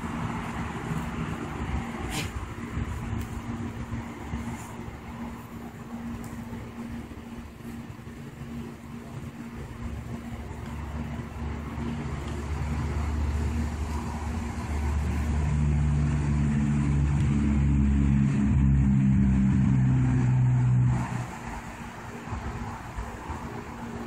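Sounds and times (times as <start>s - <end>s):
engine humming: 0.0s - 24.0s.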